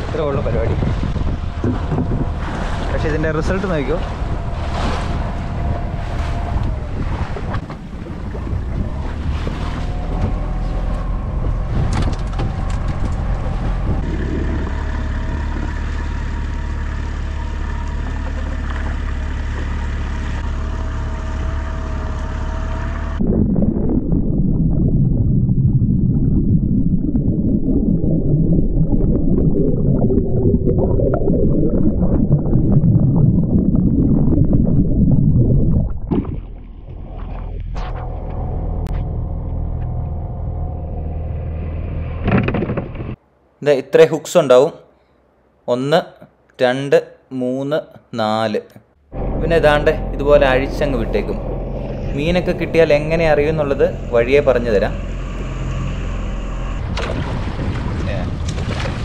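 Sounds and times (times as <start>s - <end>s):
wind on microphone: 0.0s - 16.2s, 23.1s - 38.4s, 49.2s - 59.0s
water rushing along hull: 0.0s - 24.3s, 49.2s - 59.0s
motorboat engine running: 0.0s - 30.1s, 33.4s - 43.2s, 49.0s - 59.0s
underwater rushing and bubbles: 0.0s - 40.6s, 49.1s - 59.0s.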